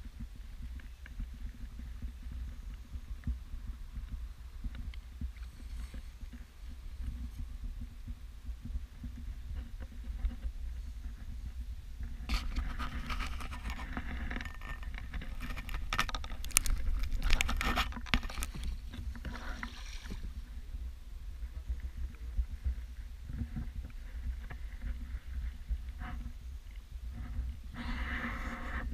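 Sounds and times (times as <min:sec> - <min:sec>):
steady low rumble: 0:00.0 - 0:28.9
water sloshing along hull: 0:00.1 - 0:28.9
paddle strokes splashing: 0:17.9 - 0:20.5.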